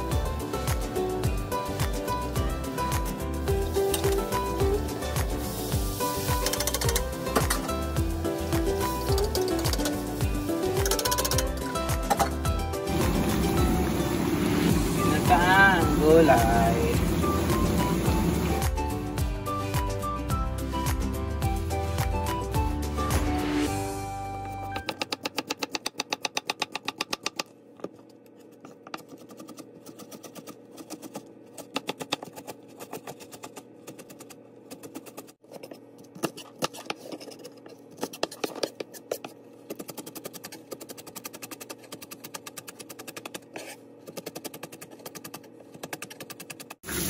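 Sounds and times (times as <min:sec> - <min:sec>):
knife chopping on plastic board: 0:24.8 - 0:27.5, 0:28.8 - 0:35.3.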